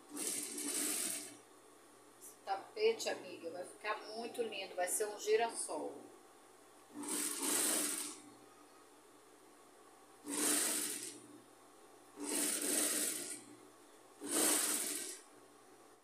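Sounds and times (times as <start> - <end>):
sewing machine stitching: 0.0 - 1.4, 6.9 - 8.3, 10.2 - 11.3, 12.2 - 13.6, 14.2 - 15.3.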